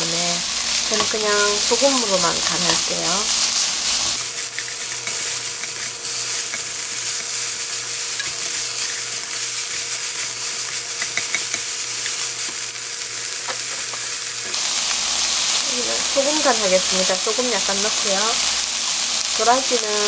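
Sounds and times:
vegetables sizzling in oil: 0:00.0 - 0:20.0
chopsticks ticking and scraping: 0:00.8 - 0:15.0.

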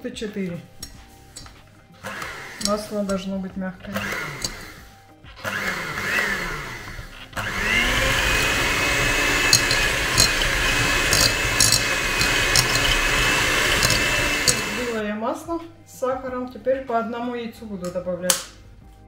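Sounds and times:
electric mixer whining: 0:02.0 - 0:03.1, 0:03.9 - 0:15.0
beaters clicking against bowl: 0:07.6 - 0:15.0.

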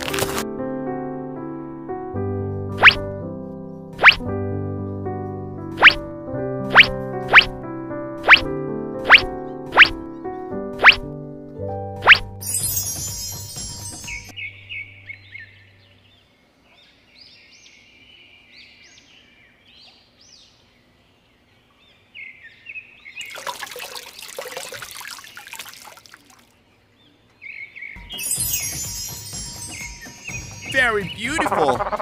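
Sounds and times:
birds chirping: 0:12.5 - 0:23.5, 0:24.8 - 0:32.0
water pouring and trickling: 0:23.2 - 0:26.6.

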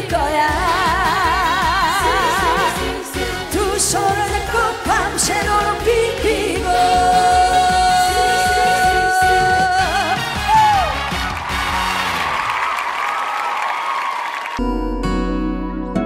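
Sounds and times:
woman singing with vibrato: 0:00.0 - 0:10.2.

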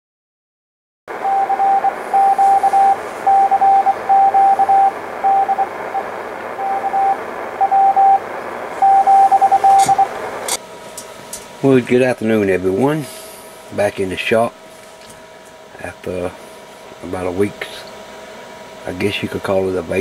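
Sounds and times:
morse code tone: 0:01.1 - 0:10.3
radio receiver hiss: 0:01.1 - 0:20.0.

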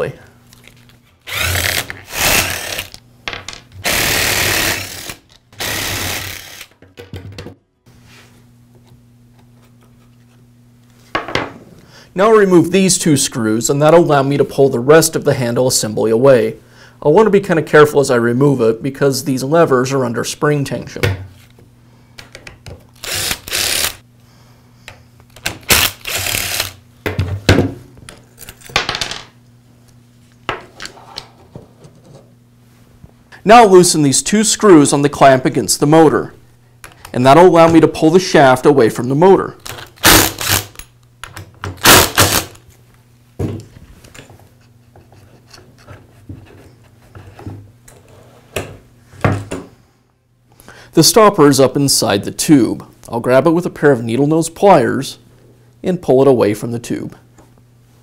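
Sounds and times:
cordless drill running: 0:01.3 - 0:03.0, 0:03.8 - 0:06.8, 0:23.0 - 0:24.0, 0:25.7 - 0:26.8, 0:40.0 - 0:40.8, 0:41.8 - 0:42.6
screwdriver grinding screws: 0:01.3 - 0:03.0, 0:03.8 - 0:06.8, 0:23.0 - 0:24.0, 0:25.4 - 0:26.8, 0:39.7 - 0:40.8, 0:41.8 - 0:42.6.

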